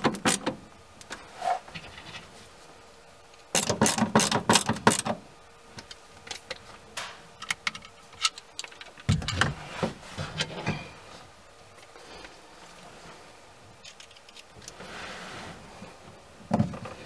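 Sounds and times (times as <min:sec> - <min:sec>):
screwdriver and screws rattling: 0:03.6 - 0:05.1.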